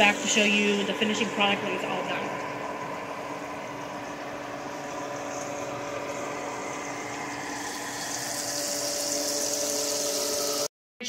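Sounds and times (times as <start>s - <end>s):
mechanical hum: 0.0s - 10.7s
chicken frying in oil: 3.8s - 10.7s.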